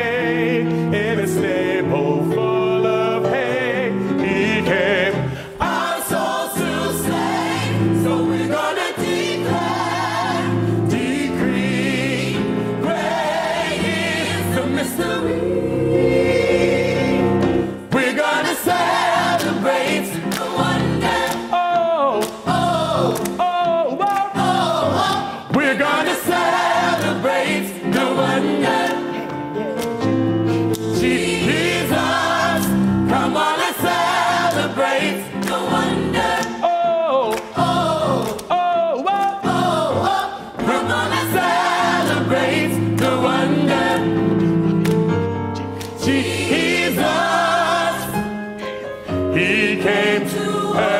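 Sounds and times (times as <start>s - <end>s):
gospel choir singing: 0.0s - 50.9s.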